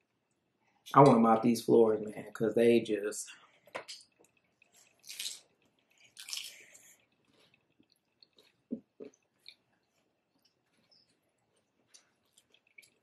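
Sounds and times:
person chewing: 0:03.6 - 0:13.0.

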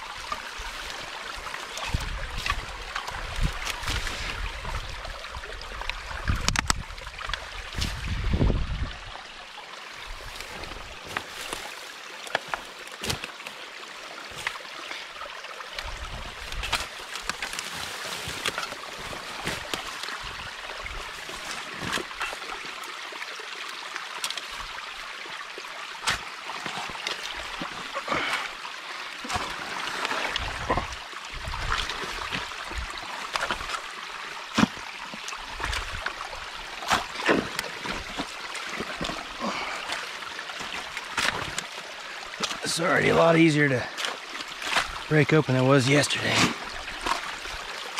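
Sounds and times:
water trickling through dam: 0:00.0 - 0:47.9
sticks snapping and knocking: 0:06.3 - 0:07.4, 0:11.1 - 0:13.6, 0:16.4 - 0:20.2, 0:40.6 - 0:41.7.

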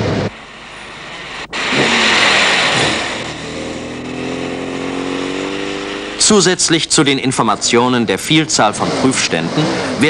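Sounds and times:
car driving past accelerating: 0:00.7 - 0:07.1.

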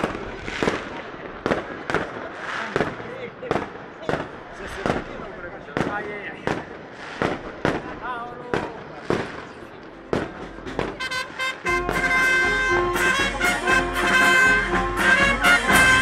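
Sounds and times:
firecracker bangs: 0:00.0 - 0:13.5
brass band playing: 0:10.7 - 0:16.0
bass drum: 0:11.7 - 0:16.0.

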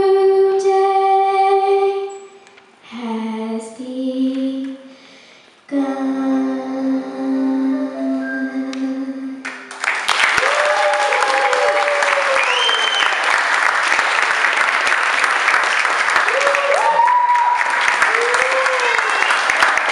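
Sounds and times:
held sung note: 0:07.0 - 0:09.4
audience applause: 0:09.5 - 0:19.9.

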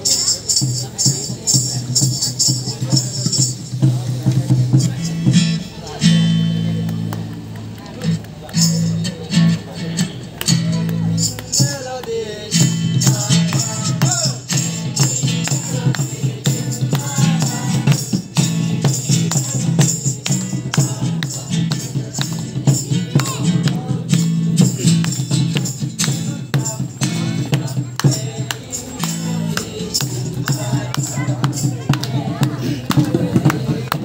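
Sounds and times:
hand claps: 0:06.6 - 0:34.0
group singing a carol: 0:10.9 - 0:34.0.

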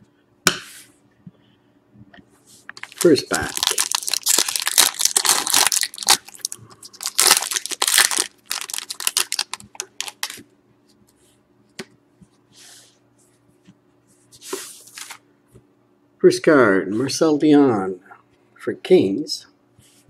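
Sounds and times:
foil card pack tearing and crinkling: 0:02.8 - 0:10.4.

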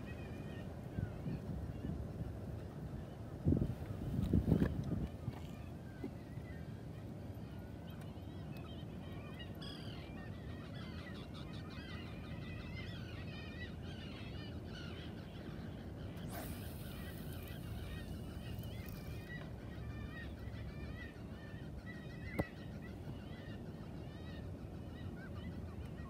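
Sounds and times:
flock of birds calling: 0:05.2 - 0:26.0.

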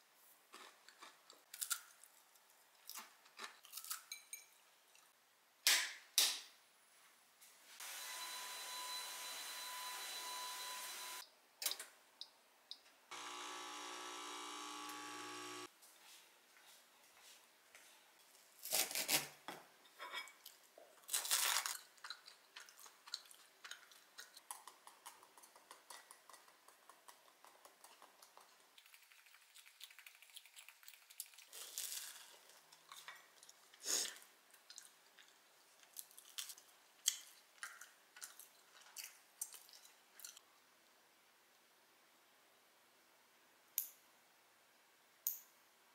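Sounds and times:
vacuum cleaner running: 0:07.8 - 0:11.2, 0:13.1 - 0:15.7
low electric hum: 0:13.1 - 0:15.7
chewing bread: 0:21.2 - 0:40.4.

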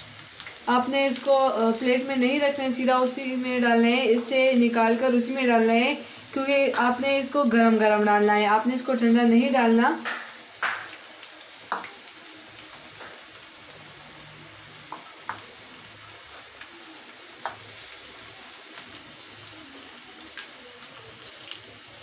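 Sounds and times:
food deep-frying in hot oil: 0:00.0 - 0:22.0
crackling pops of oil: 0:10.0 - 0:12.0.

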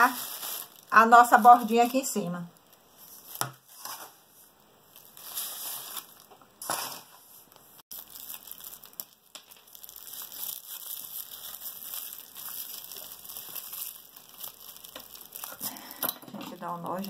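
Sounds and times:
plastic bag crinkling: 0:00.0 - 0:04.2, 0:04.9 - 0:17.0.

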